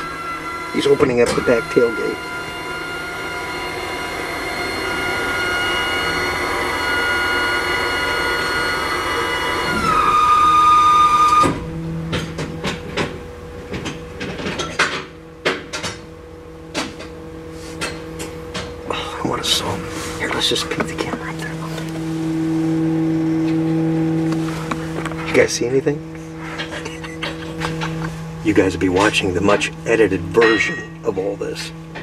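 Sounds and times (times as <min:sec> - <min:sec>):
hydraulic pump motor whining: 0:00.0 - 0:32.0
clanks and clicks: 0:11.4 - 0:16.1, 0:26.6 - 0:28.1.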